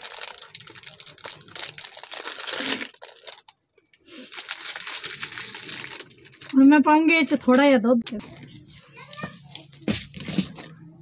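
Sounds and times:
plastic packet crinkling and tearing: 0:00.0 - 0:06.9.

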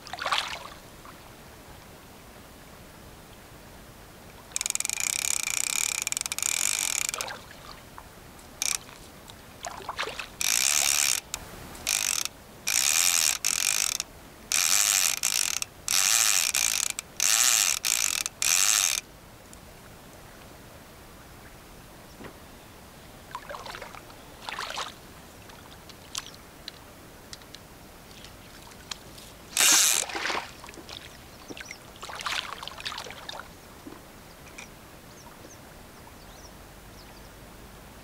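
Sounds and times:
fishing reel ratcheting: 0:04.5 - 0:07.4, 0:08.6 - 0:08.9, 0:10.4 - 0:19.0, 0:29.5 - 0:30.1.

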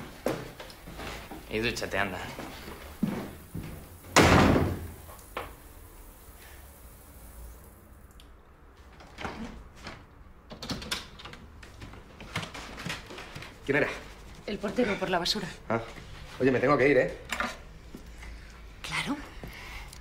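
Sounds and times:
door shutting with thud: 0:04.1 - 0:05.0.

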